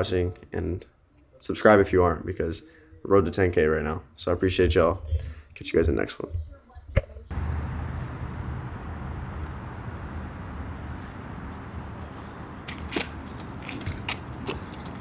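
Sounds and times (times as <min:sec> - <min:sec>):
city street traffic rumble: 0:07.3 - 0:15.0
footsteps on sidewalk: 0:07.3 - 0:15.0.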